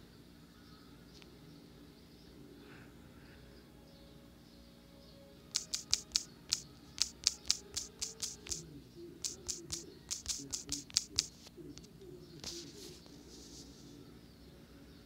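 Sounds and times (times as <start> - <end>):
touchscreen keyboard taps: 5.5 - 8.6, 9.2 - 11.5.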